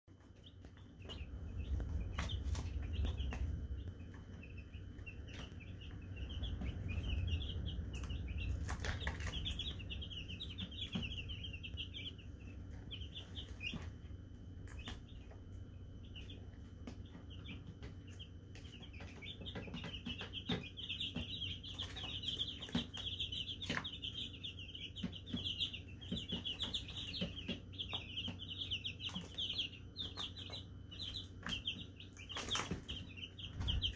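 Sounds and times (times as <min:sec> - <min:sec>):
baby chicks peeping: 0:00.1 - 0:33.9
low rumble: 0:00.5 - 0:19.6.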